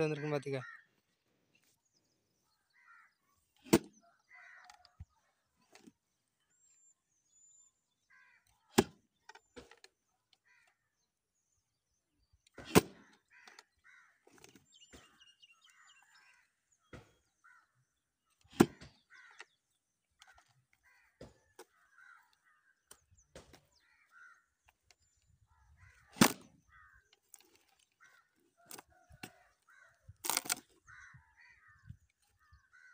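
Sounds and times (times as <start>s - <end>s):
crows cawing: 0.0s - 1.0s, 2.5s - 5.3s, 8.0s - 8.7s, 10.4s - 10.9s, 13.0s - 18.0s, 18.7s - 24.8s, 25.4s - 32.9s.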